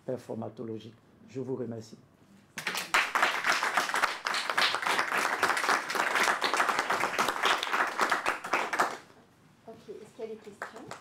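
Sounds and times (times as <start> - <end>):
audience applauding: 2.6 - 9.1.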